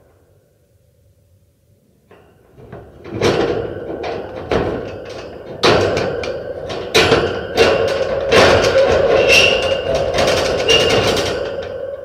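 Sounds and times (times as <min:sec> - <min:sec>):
wire-mesh cage rattling and clanging: 0:02.5 - 0:12.0.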